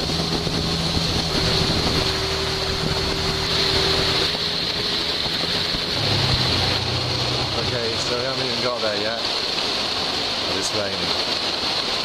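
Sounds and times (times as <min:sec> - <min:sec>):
wind on microphone: 0:00.0 - 0:08.8
boat engine running: 0:00.0 - 0:12.0
water rushing along hull: 0:00.0 - 0:12.0.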